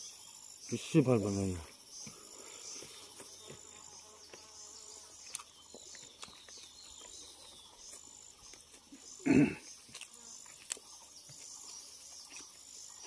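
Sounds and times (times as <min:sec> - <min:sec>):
insects chirping: 0:00.0 - 0:13.0
faint eating clicks: 0:05.2 - 0:07.7.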